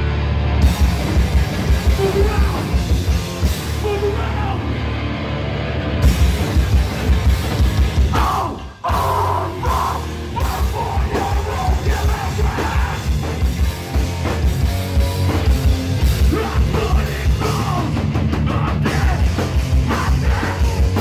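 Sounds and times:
drum kit: 0:00.0 - 0:05.2, 0:05.9 - 0:21.0
bass guitar: 0:00.0 - 0:21.0
distorted electric guitars: 0:00.0 - 0:21.0
shouted vocals: 0:03.8 - 0:04.8, 0:08.1 - 0:13.1, 0:16.2 - 0:21.0.

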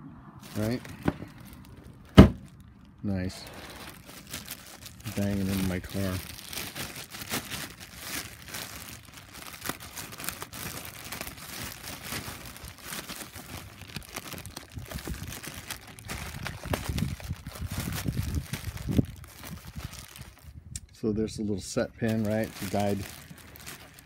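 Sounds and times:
plastic bag crinkling: 0:00.4 - 0:20.6, 0:22.0 - 0:24.0.

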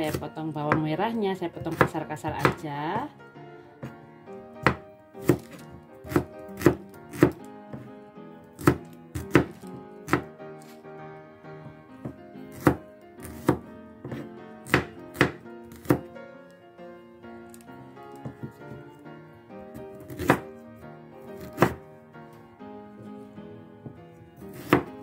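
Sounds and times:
knife chopping on cutting board: 0:00.0 - 0:00.9, 0:01.6 - 0:03.1, 0:04.6 - 0:07.9, 0:08.6 - 0:10.8, 0:12.0 - 0:16.1, 0:20.0 - 0:20.5, 0:21.4 - 0:21.8, 0:23.8 - 0:25.0.

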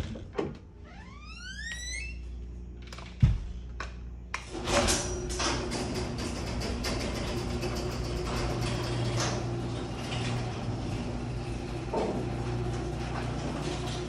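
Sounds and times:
door hinges creaking: 0:00.0 - 0:02.2
garage door opener motor: 0:04.4 - 0:14.0.

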